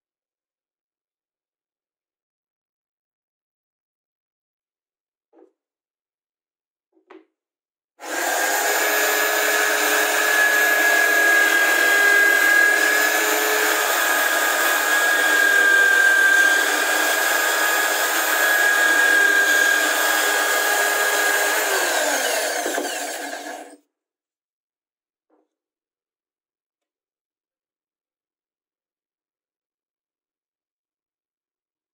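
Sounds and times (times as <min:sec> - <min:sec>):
electric drill motor whine: 0:08.0 - 0:23.8.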